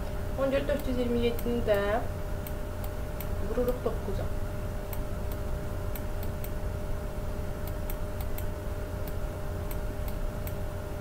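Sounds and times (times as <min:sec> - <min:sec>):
low electrical hum: 0:00.0 - 0:11.0
computer mouse clicks: 0:07.6 - 0:10.6.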